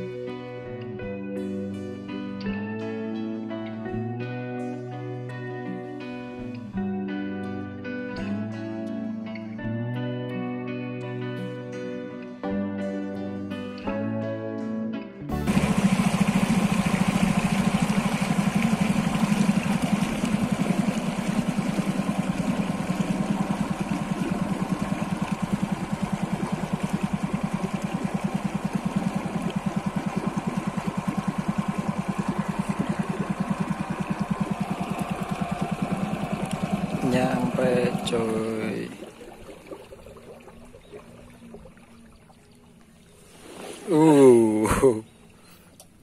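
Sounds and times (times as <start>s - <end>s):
boat engine running: 15.3s - 46.0s.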